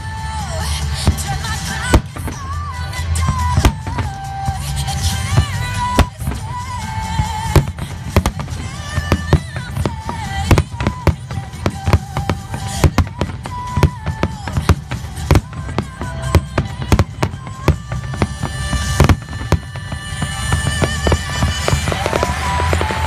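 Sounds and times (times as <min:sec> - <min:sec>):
music with steady bass: 0:00.0 - 0:23.0
firework shells bursting: 0:00.9 - 0:23.0.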